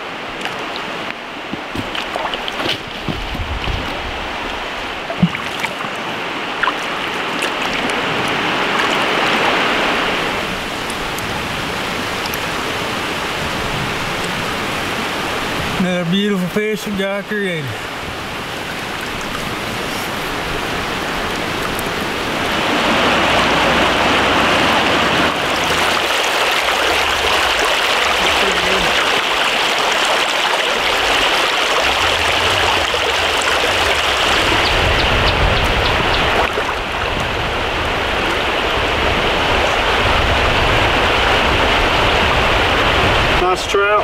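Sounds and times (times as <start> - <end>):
water flowing over stones: 0.0 - 44.0.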